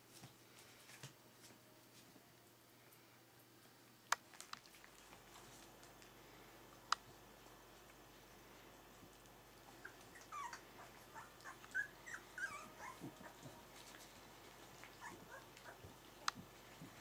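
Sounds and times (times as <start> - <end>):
puppies squeaking and whimpering: 9.7 - 13.5, 14.8 - 15.9.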